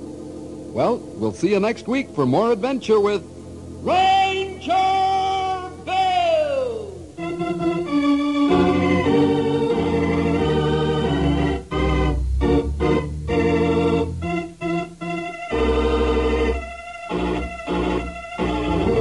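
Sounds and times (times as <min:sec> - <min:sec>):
organ playing theme music: 0:07.0 - 0:19.0.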